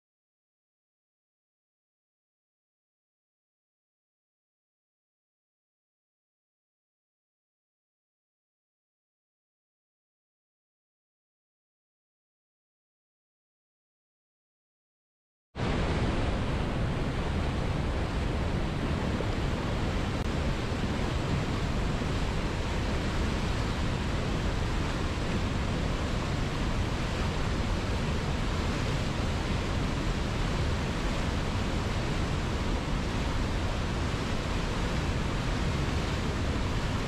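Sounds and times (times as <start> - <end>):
river rapids rushing: 15.6 - 37.0.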